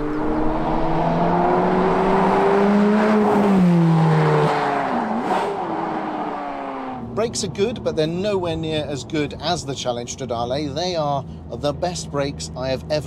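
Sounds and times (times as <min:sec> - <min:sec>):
car engine accelerating: 0:00.0 - 0:09.1.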